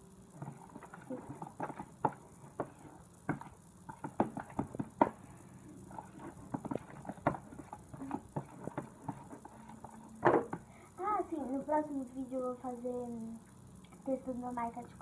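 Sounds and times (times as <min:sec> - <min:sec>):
spoon squelching in slime: 0:00.4 - 0:10.6.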